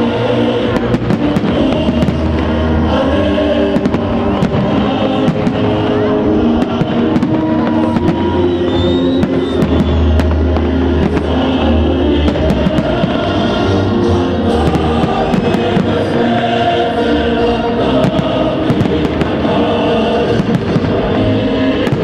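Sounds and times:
fireworks bangs and crackles: 0:00.0 - 0:22.0
loud music playing: 0:00.0 - 0:22.0.

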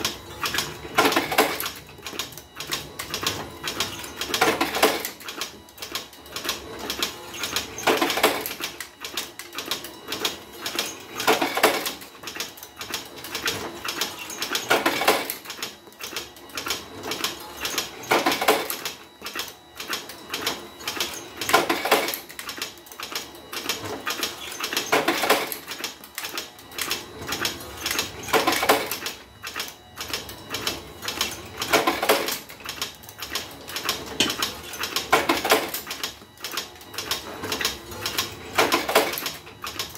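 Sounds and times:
machine clicking and clattering: 0:00.0 - 0:39.9.

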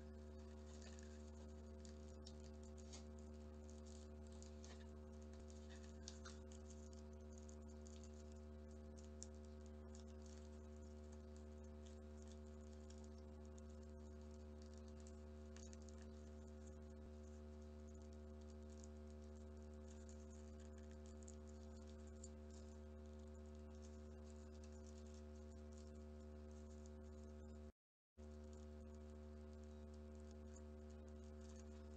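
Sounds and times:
steady electrical hum: 0:00.0 - 0:31.9.

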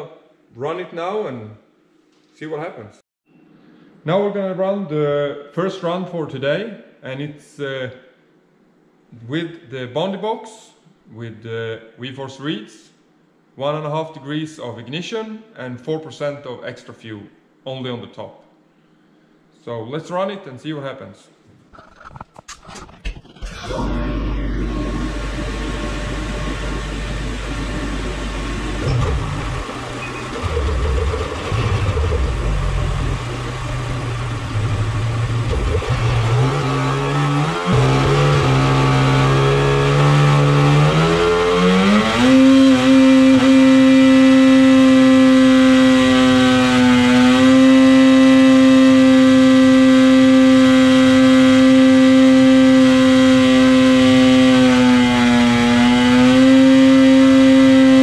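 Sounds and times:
snowmobile engine revving: 0:23.5 - 0:58.0.

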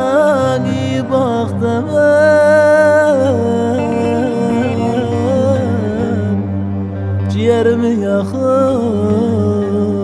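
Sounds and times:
man singing melismatic line: 0:00.0 - 0:06.5
plucked lute accompaniment: 0:00.2 - 0:10.0
steady low drone: 0:00.6 - 0:07.9.

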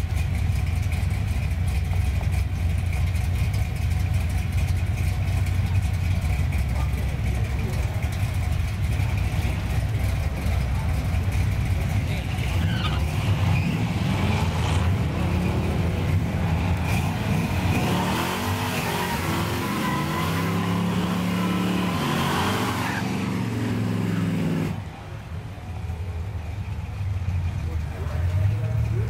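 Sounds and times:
racing engine accelerating: 0:08.8 - 0:24.8.

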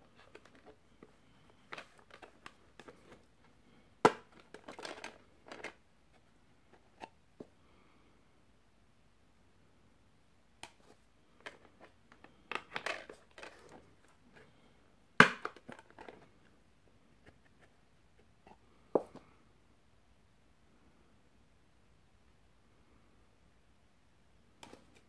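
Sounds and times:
plastic disc case clicks and rattles: 0:00.2 - 0:00.8, 0:01.6 - 0:03.1, 0:04.0 - 0:05.8, 0:11.4 - 0:13.9, 0:15.2 - 0:16.2.

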